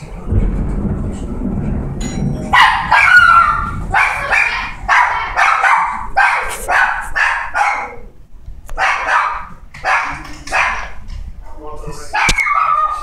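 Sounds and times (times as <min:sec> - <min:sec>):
dog barking rapidly: 0:02.5 - 0:08.1, 0:08.8 - 0:11.0, 0:12.1 - 0:13.0.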